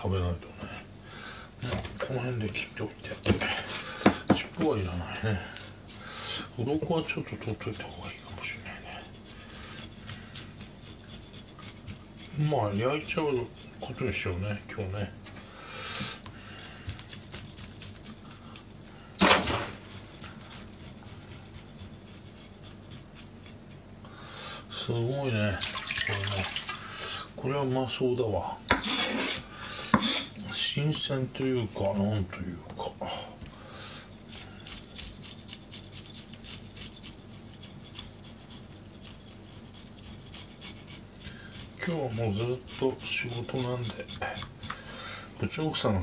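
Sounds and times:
knife scraping fish scales: 4.6 - 14.3, 16.0 - 23.9, 28.7 - 30.7, 33.4 - 45.9.

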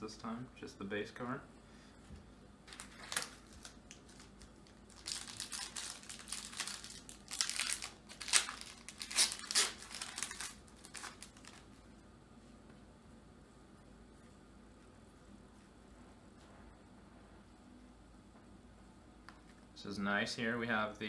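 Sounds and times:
foil wrapper crinkling and tearing: 2.7 - 11.7.

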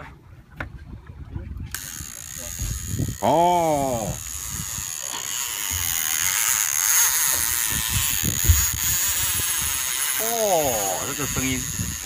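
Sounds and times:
fishing reel drag buzzing: 1.7 - 12.0.

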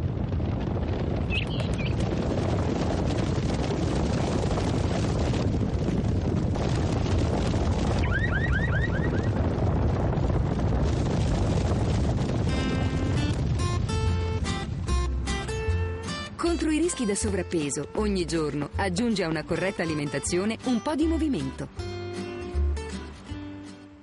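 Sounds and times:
crowd running: 0.0 - 14.1.

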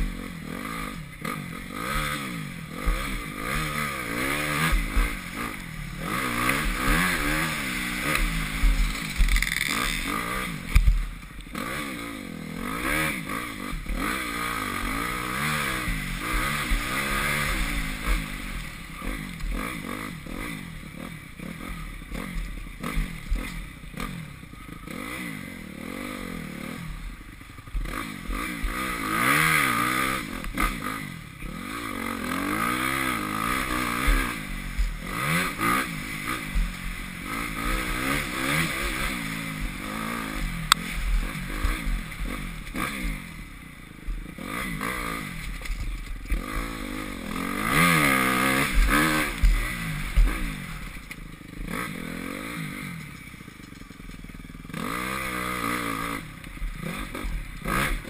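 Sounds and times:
motocross engine revving: 0.0 - 58.0.

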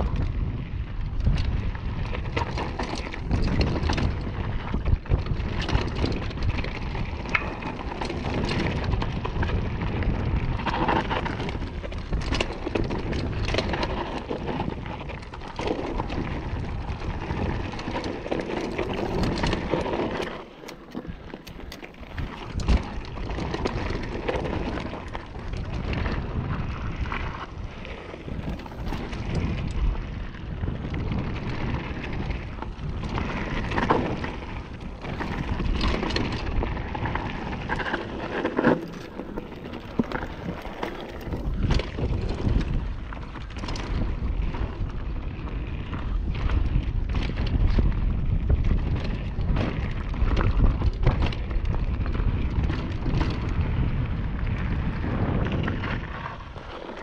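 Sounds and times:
bike rattling over bumps: 0.0 - 57.0
bike tyres crunching gravel: 0.0 - 57.0
wind rumble on microphone: 0.0 - 57.0.

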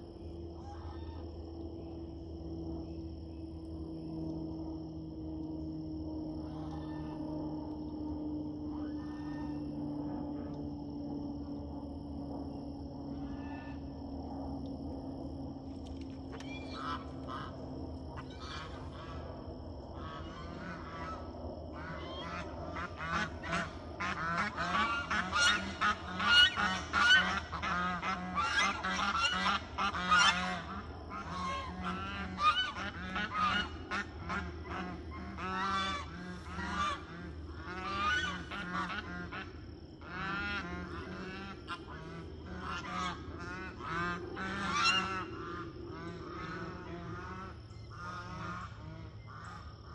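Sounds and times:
geese honking: 6.4 - 7.2, 16.3 - 17.6, 18.2 - 19.2, 20.0 - 49.9.

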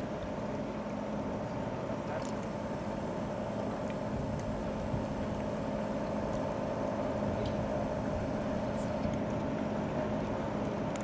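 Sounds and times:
boat engine droning: 0.0 - 11.0
water churning: 0.0 - 11.0.

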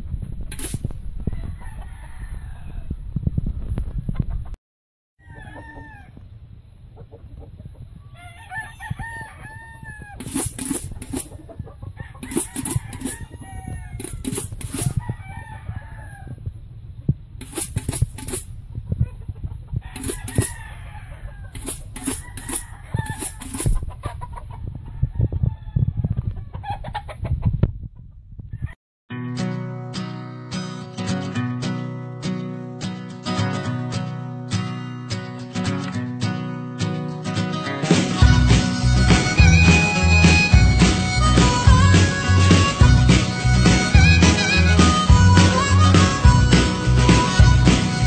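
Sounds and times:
roosters clucking and crowing: 0.2 - 4.6, 5.2 - 28.8, 37.9 - 48.0
acoustic guitar music: 29.1 - 48.0.

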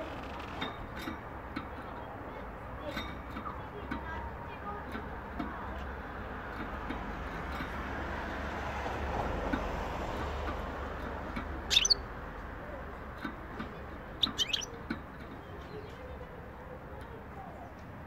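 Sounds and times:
small songbird chirping: 11.6 - 12.2, 13.8 - 17.9.

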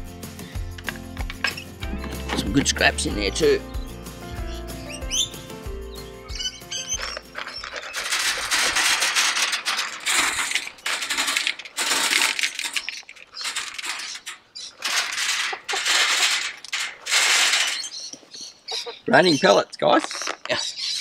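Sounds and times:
feed pellets pouring and rattling: 7.0 - 18.0.

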